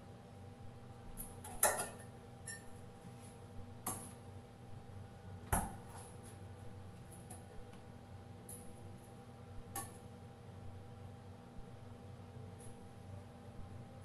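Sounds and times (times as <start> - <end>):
low background hum: 0.0 - 14.0
utensils clinking on steel counter: 1.4 - 2.7.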